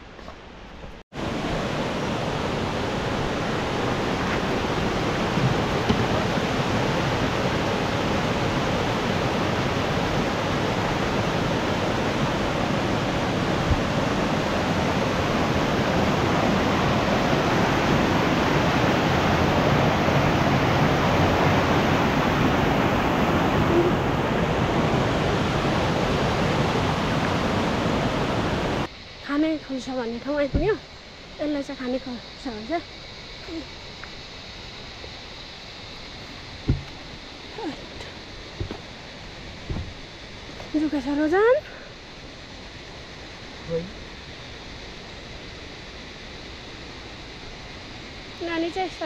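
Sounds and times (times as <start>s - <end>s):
stream rushing over boulders: 1.1s - 28.9s, 35.8s - 41.4s.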